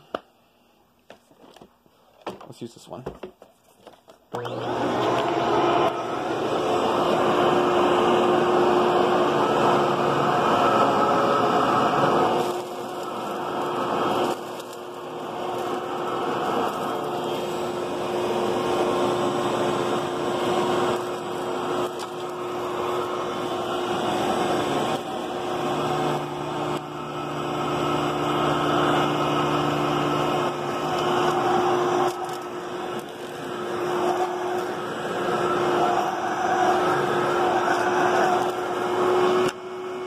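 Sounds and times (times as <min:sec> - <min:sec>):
vacuum cleaner on carpet: 0:04.3 - 0:40.0.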